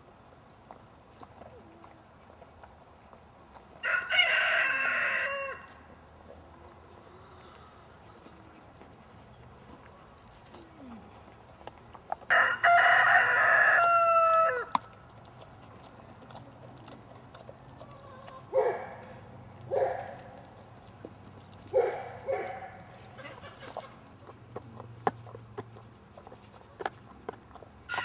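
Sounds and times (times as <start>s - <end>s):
rooster crowing: 3.8s - 5.7s, 12.3s - 14.8s.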